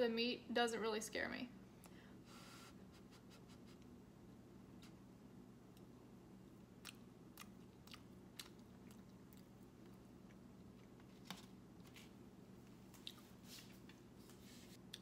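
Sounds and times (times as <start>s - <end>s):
low room tone hum: 0.0s - 15.0s
faint chewing: 5.7s - 11.3s, 12.8s - 13.6s, 14.8s - 15.0s.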